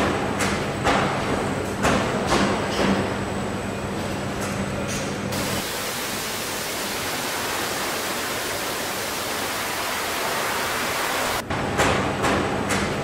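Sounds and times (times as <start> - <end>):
low factory hum: 0.0 - 13.0
water spray hissing: 5.4 - 11.4.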